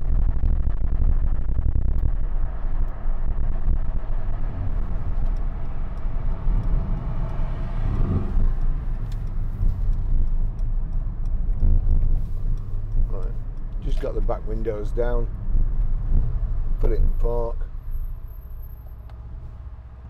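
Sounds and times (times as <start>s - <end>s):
car engine low rumble: 0.0s - 20.0s
road noise: 0.0s - 20.0s.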